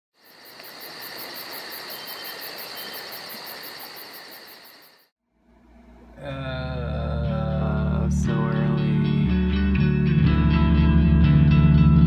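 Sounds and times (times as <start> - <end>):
crickets chirping: 0.2 - 5.1.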